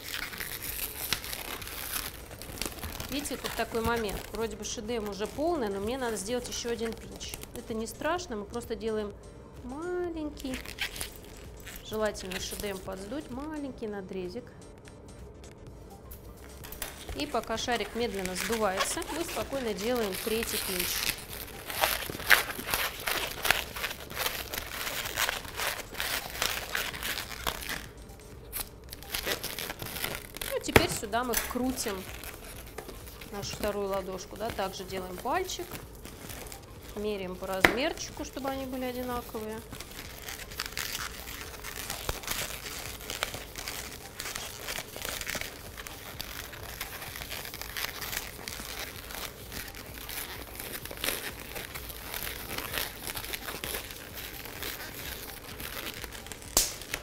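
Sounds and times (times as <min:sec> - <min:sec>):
balloon squeaks and rubbing: 0:00.0 - 0:08.0, 0:10.5 - 0:13.0, 0:16.9 - 0:57.0.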